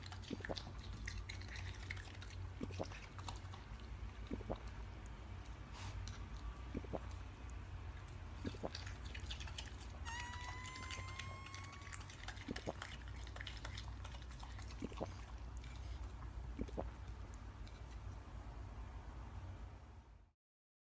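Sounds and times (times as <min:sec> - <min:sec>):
low hum: 0:00.0 - 0:20.3
cartoon squeak rising in pitch: 0:10.0 - 0:12.1.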